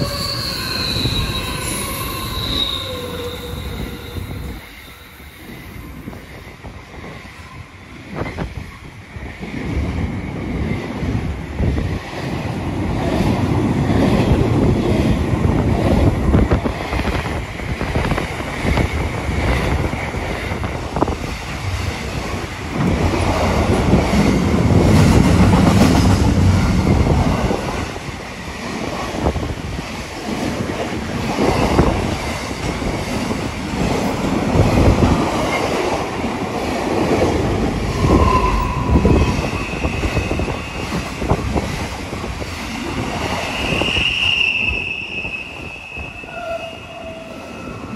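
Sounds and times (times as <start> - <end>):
high wheel squeals: 0.0 - 6.0, 37.9 - 41.0, 43.4 - 47.9
freight train rumbling and clattering: 5.4 - 44.9.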